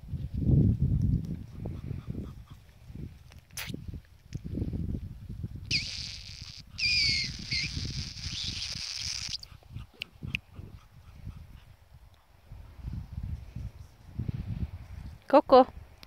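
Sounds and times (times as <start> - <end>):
dog whining: 5.7 - 8.7.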